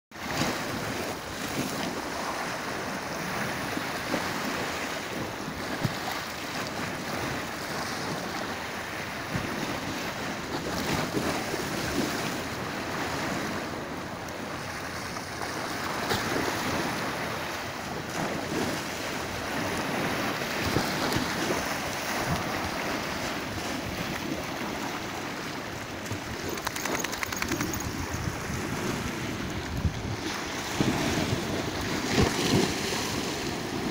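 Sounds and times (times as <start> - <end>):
wind noise on microphone: 0.2 - 33.9
sea waves breaking on concrete: 14.5 - 33.9.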